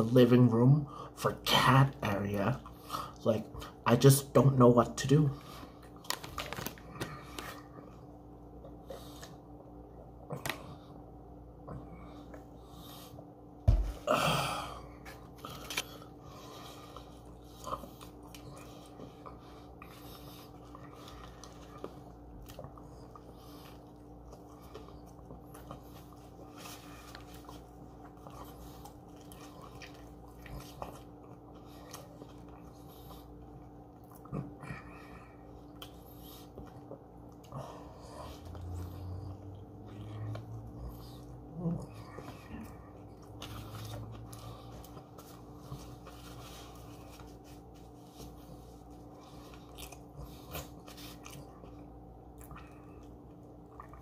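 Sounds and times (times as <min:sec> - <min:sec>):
faint steady hum: 0:00.0 - 0:54.0
foil wrapper crinkling: 0:06.0 - 0:07.4
person chewing: 0:14.8 - 0:54.0.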